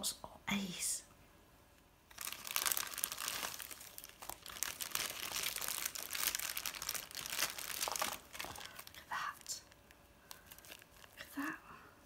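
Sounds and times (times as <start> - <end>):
plastic bag crinkling: 2.1 - 11.3.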